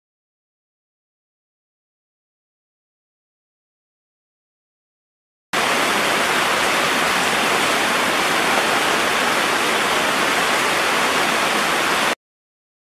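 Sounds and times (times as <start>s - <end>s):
loud rushing hiss: 5.6s - 12.2s.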